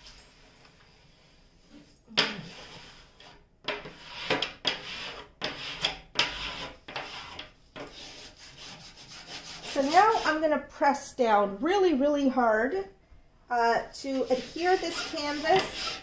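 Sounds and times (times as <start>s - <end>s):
smoothing tool scratching sheet: 2.5s - 10.4s, 14.0s - 16.0s.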